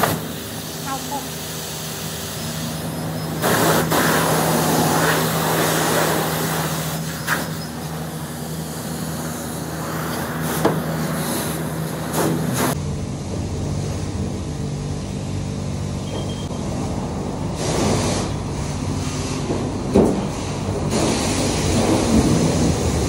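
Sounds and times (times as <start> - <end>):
pressure wand spraying water: 0.0 - 12.8, 17.6 - 23.0.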